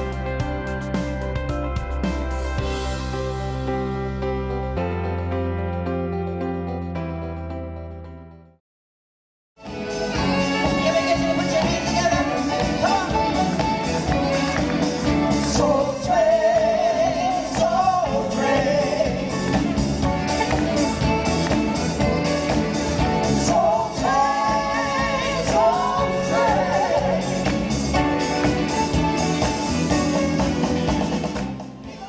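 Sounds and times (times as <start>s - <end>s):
bass guitar: 0.0s - 8.5s, 9.6s - 32.0s
drum kit beat: 9.6s - 32.0s
female vocal group singing: 15.4s - 19.5s, 23.3s - 27.5s.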